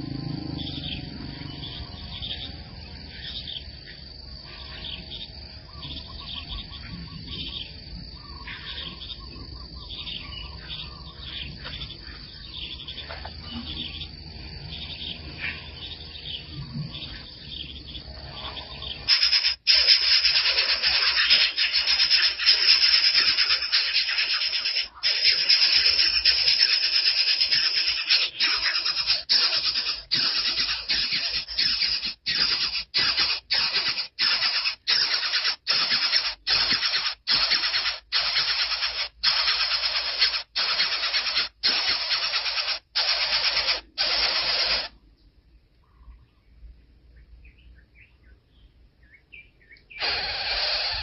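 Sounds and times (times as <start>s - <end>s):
small birds chirping: 0.0s - 51.0s
harsh scratchy hiss: 19.1s - 44.9s.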